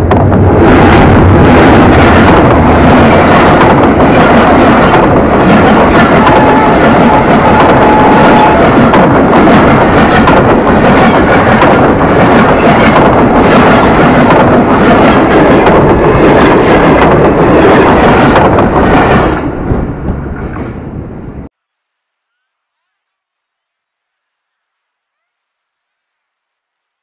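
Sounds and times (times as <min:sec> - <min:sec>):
train rumbling past: 0:00.0 - 0:21.5
wheel clatter on rails: 0:01.8 - 0:20.8.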